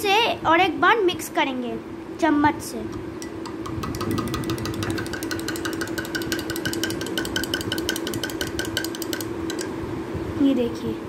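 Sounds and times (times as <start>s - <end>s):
steady low hum: 1.5s - 11.0s
spoon clinking in a glass mug: 3.2s - 9.7s.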